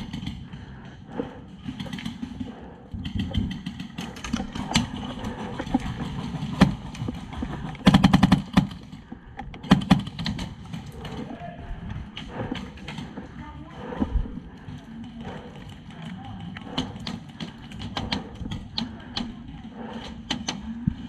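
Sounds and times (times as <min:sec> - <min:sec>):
airsoft rifle shots: 0:07.8 - 0:08.8, 0:09.6 - 0:10.5.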